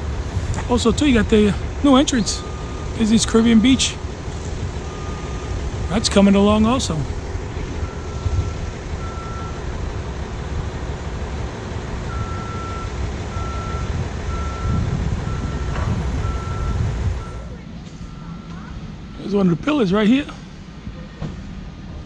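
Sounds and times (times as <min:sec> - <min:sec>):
steady low rumble: 0:00.0 - 0:19.6
reversing alarm beeps: 0:01.9 - 0:04.1, 0:04.9 - 0:07.0, 0:07.8 - 0:09.6, 0:12.1 - 0:18.7.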